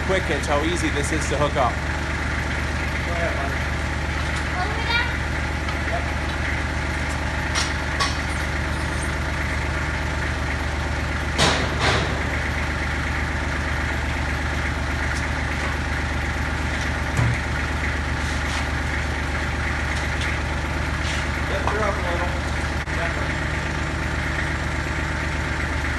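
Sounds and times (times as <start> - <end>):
diesel tractor engine idling: 0.0 - 25.9
metal clunks: 11.4 - 12.4.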